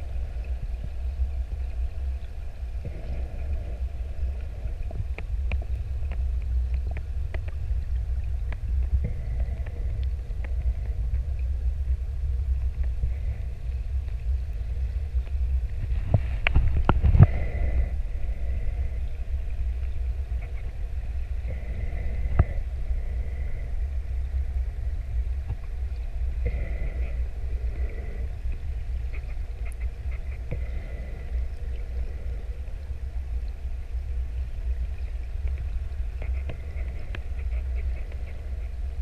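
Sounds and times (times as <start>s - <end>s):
faint ticks: 0.0s - 39.0s
underwater low rumble: 0.0s - 39.0s.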